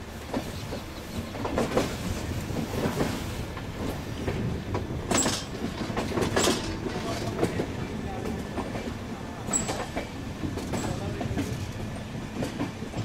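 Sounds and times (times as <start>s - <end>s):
train wheels rolling rumble: 0.0s - 13.0s
wheels clacking over rail joints: 0.2s - 13.0s.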